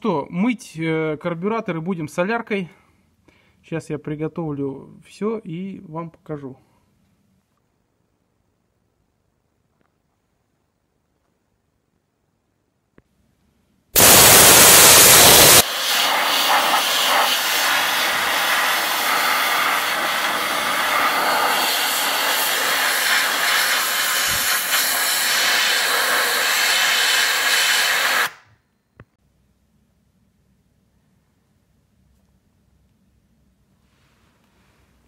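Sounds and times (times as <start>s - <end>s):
compressed air gun hissing: 14.0s - 28.4s.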